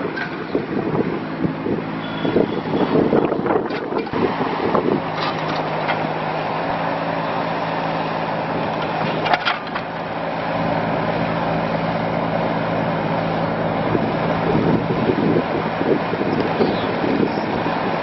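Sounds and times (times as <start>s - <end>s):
excavator clatter: 0.0s - 0.7s, 2.8s - 6.5s, 8.5s - 10.1s
diesel engine running: 0.0s - 18.0s.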